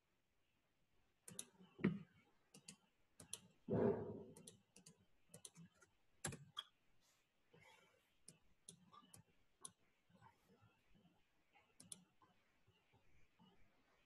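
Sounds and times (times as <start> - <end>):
keyboard and mouse clicks: 2.5 - 3.6, 4.3 - 6.8, 11.8 - 12.1.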